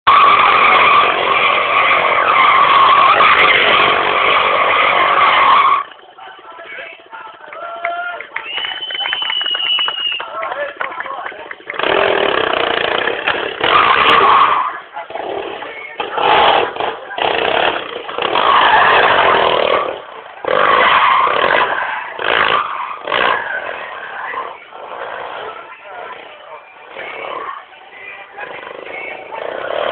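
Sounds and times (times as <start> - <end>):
quad bike engine revving: 0.1 - 5.9, 11.6 - 29.9
high-pitched mechanical squeal: 0.1 - 6.4.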